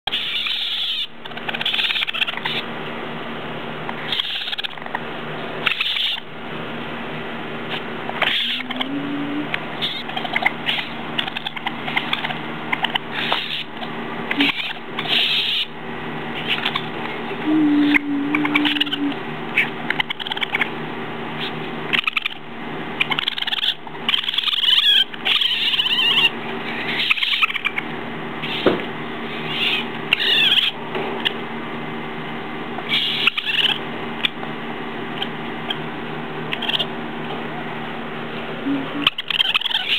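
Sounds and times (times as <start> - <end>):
baby raccoons crying: 0.1 - 2.7, 4.0 - 4.8, 5.6 - 6.3, 7.7 - 20.7, 21.4 - 31.4, 32.8 - 34.4, 38.6 - 39.9
low hum: 1.1 - 39.9.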